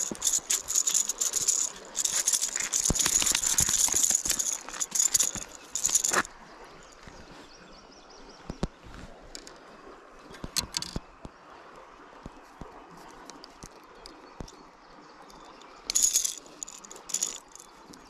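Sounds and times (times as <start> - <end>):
lure rattles clattering: 0.0 - 6.3, 10.5 - 11.0, 15.3 - 18.0.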